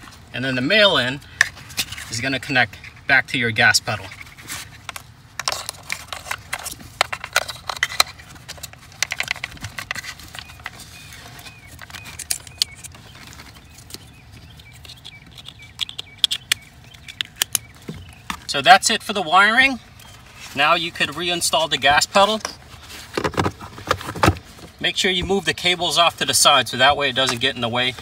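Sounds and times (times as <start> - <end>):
plastic connectors clicking and rattling: 4.8 - 10.8, 11.4 - 17.7.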